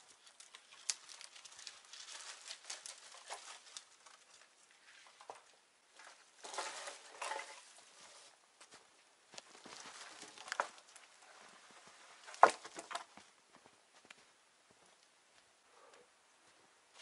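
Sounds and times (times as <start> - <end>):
rustling crunches: 0.0 - 15.1
branches crackling: 0.0 - 15.4.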